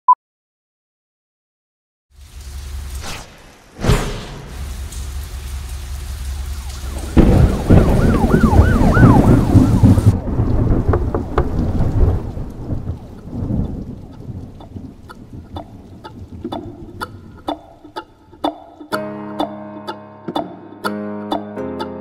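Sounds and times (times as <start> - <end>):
rain-like hiss: 2.1 - 17.3
loud crash: 3.0 - 4.7
thunder-like rumble: 3.8 - 17.4.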